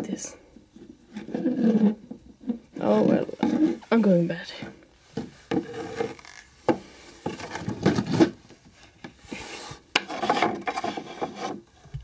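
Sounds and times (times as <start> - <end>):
plastic toy rubbing on wood: 1.1 - 3.9, 9.3 - 11.6.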